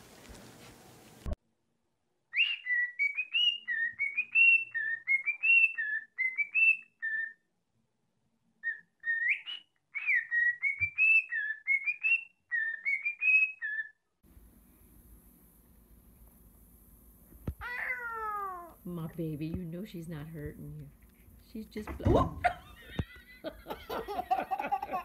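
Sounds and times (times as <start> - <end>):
cockatiel whistling a tune: 2.3 - 7.4, 8.6 - 14.0.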